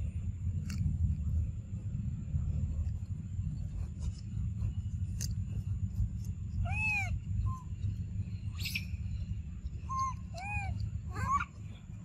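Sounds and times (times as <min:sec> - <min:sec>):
low rumble: 0:00.0 - 0:12.0
monkey coo calls: 0:06.6 - 0:07.7, 0:09.8 - 0:11.8.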